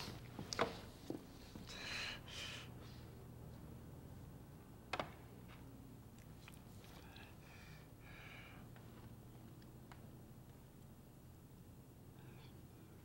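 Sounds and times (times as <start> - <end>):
person breathing: 1.6 - 3.2, 6.8 - 8.7.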